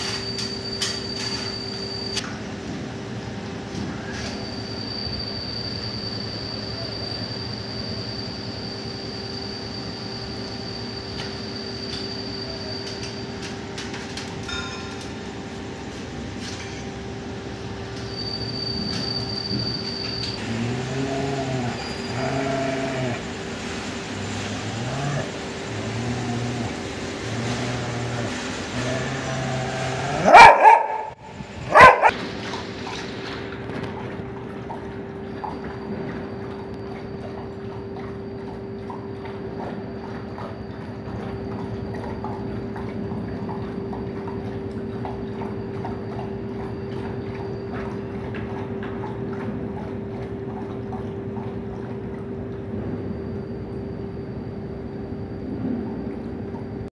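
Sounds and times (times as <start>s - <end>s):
dog barking loudly: 29.8s - 32.2s.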